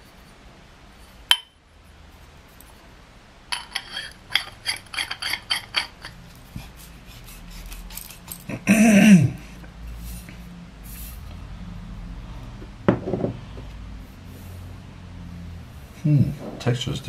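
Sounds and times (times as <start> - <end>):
metal tubes knocking: 3.5 - 6.2.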